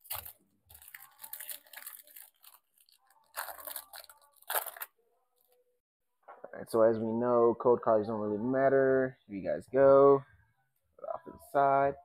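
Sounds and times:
foil wrapper tearing: 0.0s - 4.9s.

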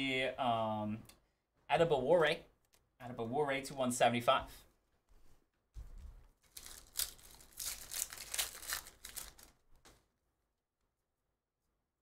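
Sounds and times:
foil wrapper crinkling and tearing: 6.4s - 9.7s.

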